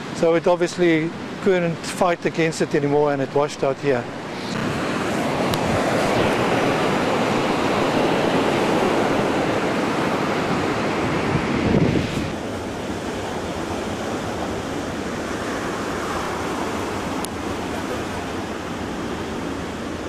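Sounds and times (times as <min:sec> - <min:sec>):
ocean surf breaking: 0:00.0 - 0:20.0
wind on microphone: 0:04.1 - 0:18.5.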